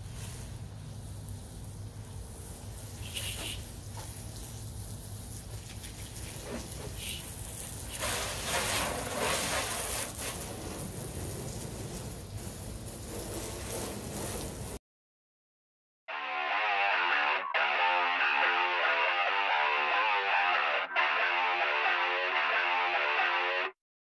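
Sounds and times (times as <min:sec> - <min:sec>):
hose water spraying on a car: 0:00.0 - 0:14.8.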